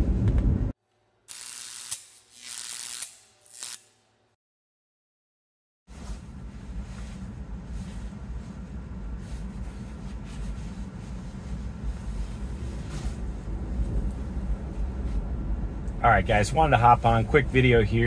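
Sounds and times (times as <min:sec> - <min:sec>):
road and tyre rumble in car: 0:00.0 - 0:00.8, 0:05.9 - 0:18.0.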